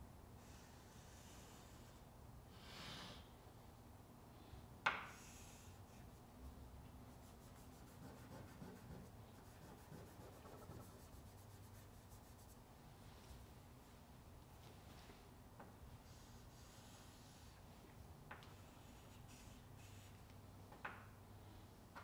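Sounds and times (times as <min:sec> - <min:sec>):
chalk scraping on a chalkboard: 0:00.4 - 0:02.0, 0:07.1 - 0:12.6, 0:16.0 - 0:17.6, 0:18.5 - 0:20.2.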